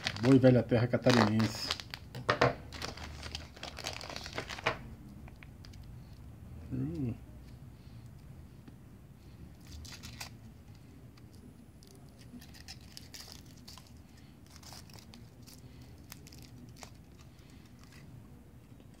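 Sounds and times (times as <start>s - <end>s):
foil wrapper crinkling and tearing: 0.0s - 4.8s, 9.6s - 10.4s, 11.8s - 18.0s.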